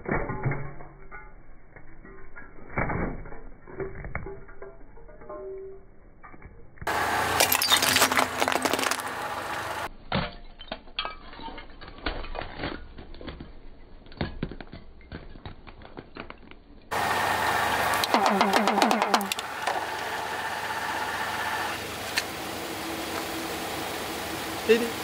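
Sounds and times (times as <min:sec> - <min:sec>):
tyre crushing brittle objects: 0:06.9 - 0:17.1.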